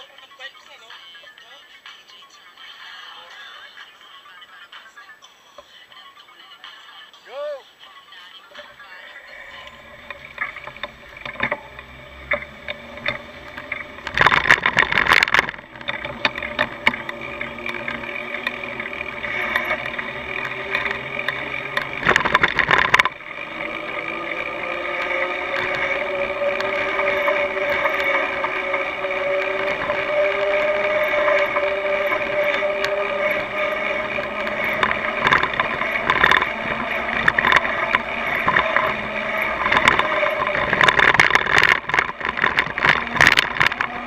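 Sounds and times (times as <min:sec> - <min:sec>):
bicycle whining hum: 0:07.7 - 0:44.0
bicycle ticking and rattling: 0:09.3 - 0:44.0.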